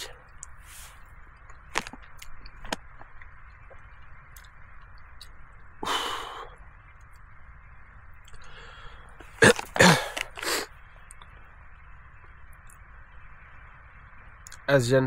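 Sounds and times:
man breathing sharply: 5.8 - 6.6, 8.4 - 9.3.

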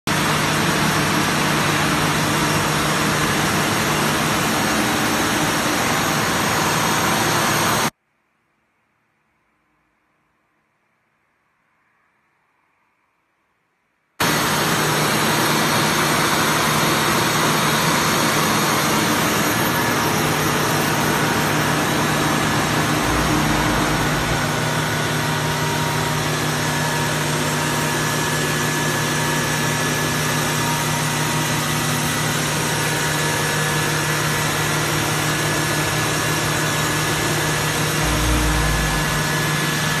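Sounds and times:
brief low rumbles: 22.5 - 25.8, 38.0 - 40.0.

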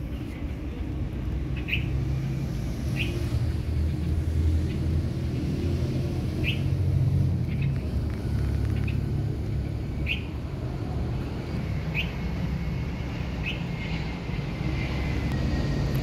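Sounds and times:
bird chirping: 1.5 - 2.0, 2.9 - 4.8, 6.4 - 6.8, 7.4 - 7.9, 8.7 - 9.1, 10.0 - 10.4, 11.9 - 12.2, 13.4 - 13.7
steady low rumble: 6.7 - 16.0.

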